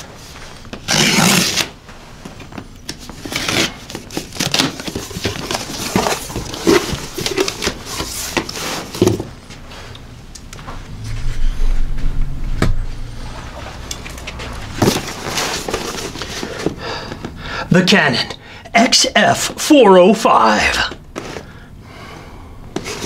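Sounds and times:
low rumble: 10.2 - 16.3.

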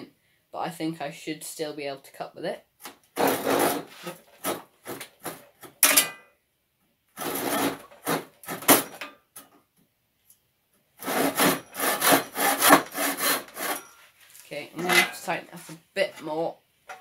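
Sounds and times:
hand saw cutting wood: 3.2 - 5.4, 7.2 - 9.0, 11.0 - 13.9.

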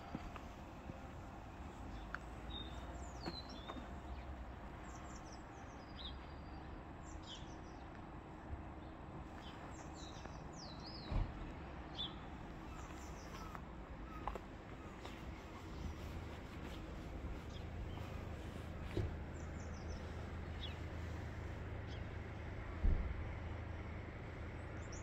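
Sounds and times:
small birds chirping: 1.8 - 7.9, 11.9 - 21.2
low steady rumble: 12.3 - 25.0.

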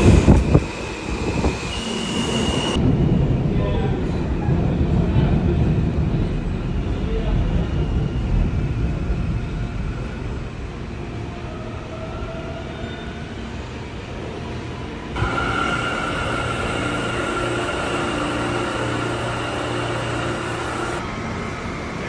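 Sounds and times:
high motor whine: 0.0 - 2.8, 15.2 - 22.0
subway train rumbling: 0.0 - 22.0
wheels on rails: 15.2 - 21.0.

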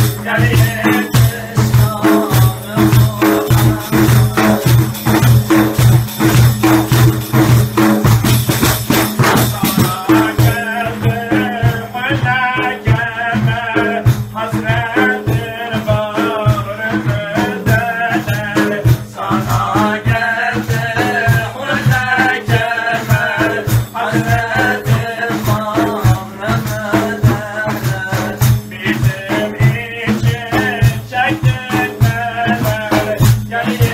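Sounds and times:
man singing devotional melody: 0.0 - 7.0, 8.6 - 33.9
frame drums beaten in rhythm: 0.0 - 33.9.

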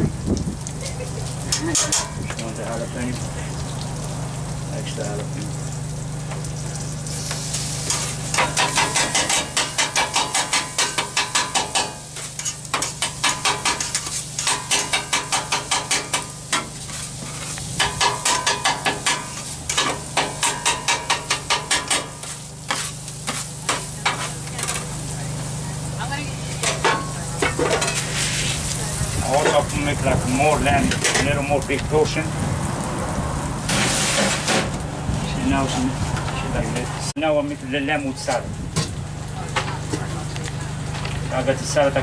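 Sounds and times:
meat sizzling on griddle: 0.0 - 42.0
scraper blade chopping on griddle: 7.9 - 24.8.

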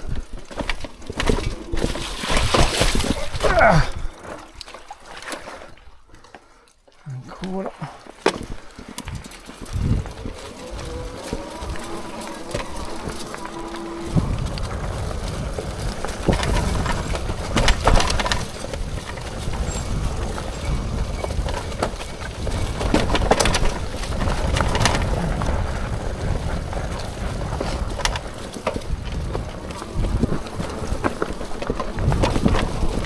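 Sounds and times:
bike knocks and rattles: 0.0 - 5.7, 8.1 - 33.0
wind buffeting microphone: 8.3 - 33.0.

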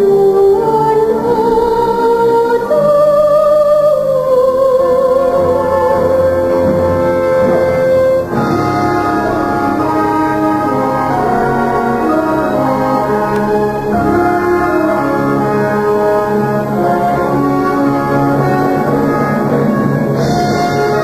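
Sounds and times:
orchestral music with brass: 0.0 - 21.0.

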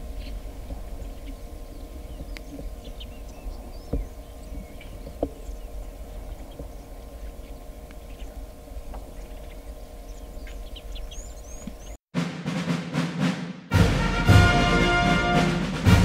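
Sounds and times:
small bird chirps: 0.0 - 12.0
steady low rumble: 0.0 - 12.0.

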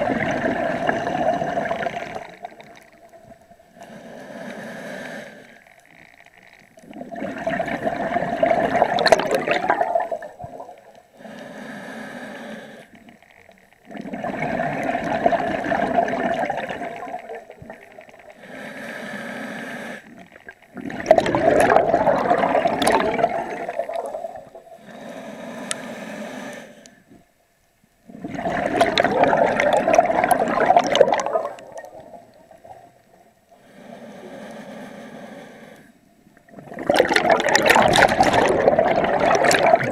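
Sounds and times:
exhaled bubbles gushing: 0.0 - 3.5, 6.0 - 11.0, 13.1 - 18.4, 20.2 - 24.8, 28.1 - 33.2, 36.4 - 39.9
scuba regulator breathing hiss: 3.8 - 5.6, 11.1 - 13.0, 18.4 - 20.2, 24.8 - 27.0, 33.6 - 36.1.

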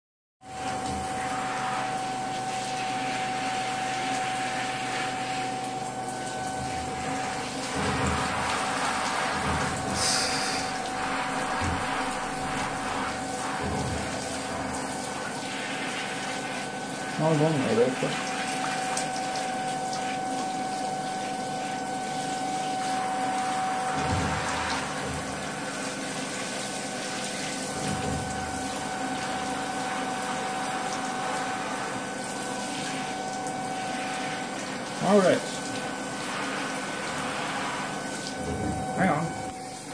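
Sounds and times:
shower spray hissing: 6.7 - 20.2, 21.6 - 38.4.

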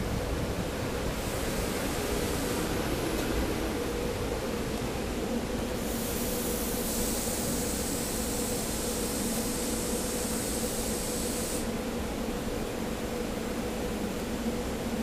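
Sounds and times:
railcar equipment humming: 0.0 - 15.0
loud hiss: 5.8 - 11.8.

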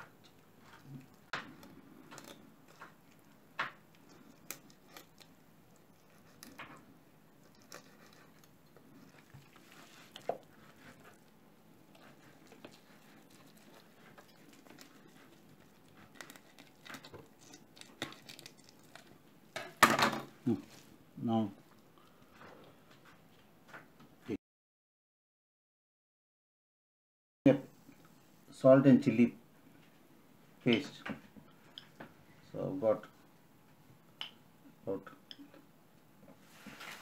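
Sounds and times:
rubbing wet fish skin: 7.4 - 19.2.

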